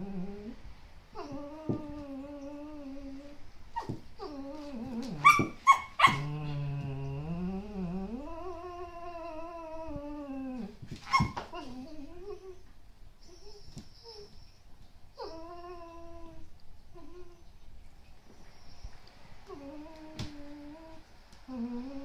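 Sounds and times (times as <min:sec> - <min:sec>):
dog whining and grumbling: 0:00.0 - 0:14.4, 0:15.2 - 0:17.5, 0:19.5 - 0:22.0
dog yipping: 0:03.7 - 0:04.4, 0:05.1 - 0:06.3, 0:11.0 - 0:12.5.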